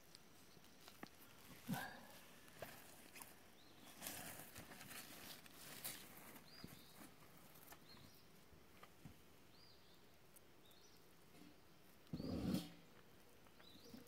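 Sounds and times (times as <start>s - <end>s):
faint rustling: 0.0s - 9.2s.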